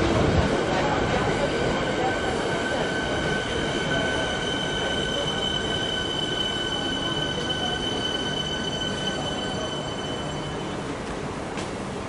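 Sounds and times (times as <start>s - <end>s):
train cars rumbling: 0.0s - 12.0s
high-pitched squeal: 1.8s - 10.8s.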